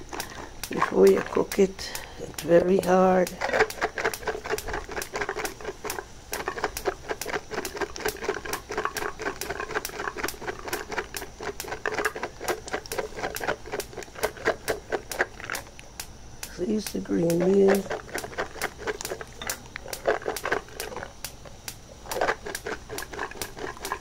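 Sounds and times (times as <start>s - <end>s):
peas boiling in a pan: 0.0s - 24.0s.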